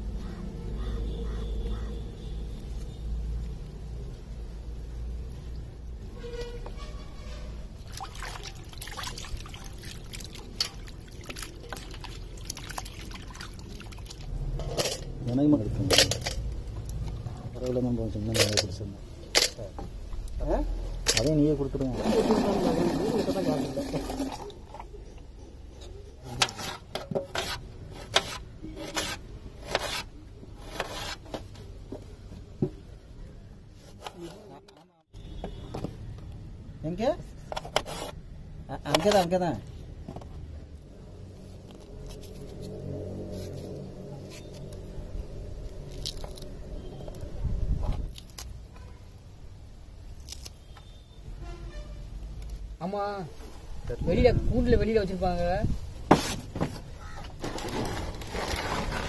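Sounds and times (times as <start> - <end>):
water splashing in a bowl: 7.8 - 14.4, 22.0 - 24.8
knife slicing onions on steel tray: 26.3 - 31.5.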